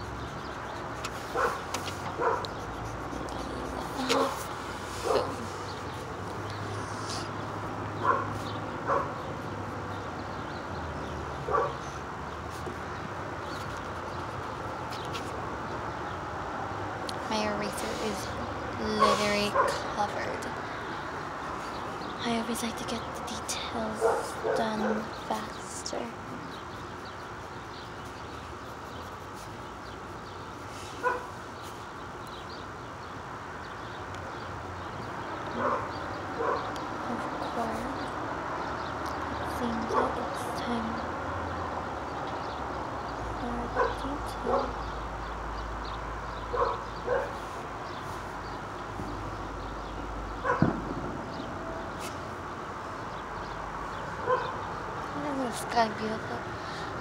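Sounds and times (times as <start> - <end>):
outdoor background noise: 0.0 - 57.0
dog barking: 1.3 - 1.6, 2.2 - 2.5, 4.0 - 4.4, 5.0 - 5.4, 8.0 - 9.2, 11.5 - 11.8, 19.0 - 19.8, 24.0 - 25.1, 31.0 - 31.3, 35.6 - 36.7, 43.7 - 44.8, 46.5 - 47.4, 50.4 - 50.7, 54.2 - 54.6.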